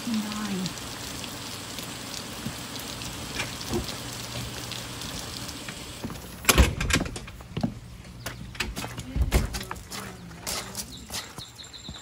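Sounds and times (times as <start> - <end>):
heavy rain on wood and gravel: 0.0 - 12.0.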